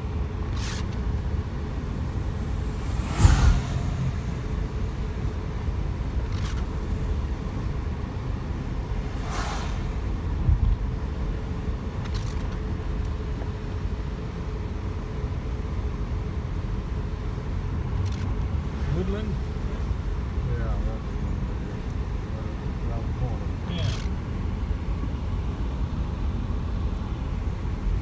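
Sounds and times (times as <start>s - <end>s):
car road and engine rumble: 0.0s - 28.0s
brief whooshes: 2.1s - 5.2s, 8.9s - 10.2s.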